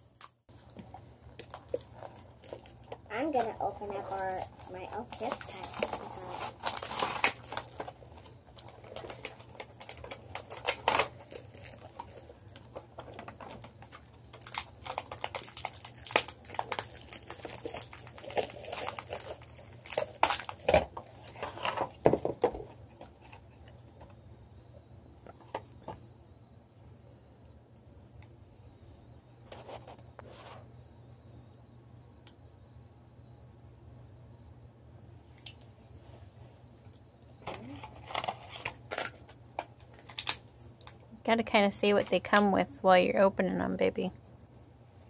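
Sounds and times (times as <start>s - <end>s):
packaging crinkling and rustling: 0.0s - 24.2s, 36.8s - 41.0s.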